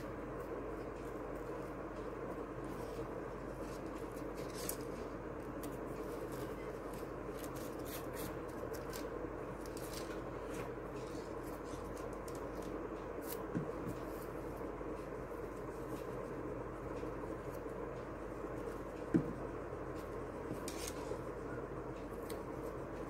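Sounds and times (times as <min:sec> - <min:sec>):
steady background hum: 0:00.0 - 0:23.0
crepe paper rustling: 0:02.6 - 0:14.4.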